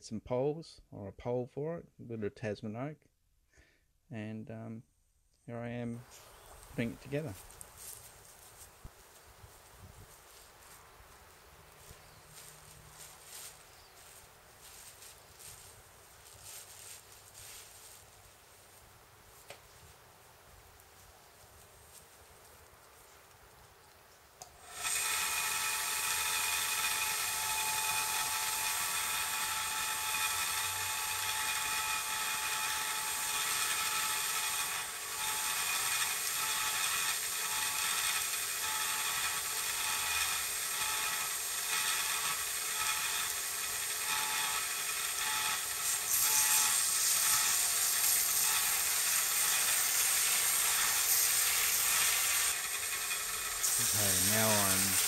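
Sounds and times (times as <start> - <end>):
mitre saw blade grinding wood: 11.7 - 18.1, 24.4 - 55.0.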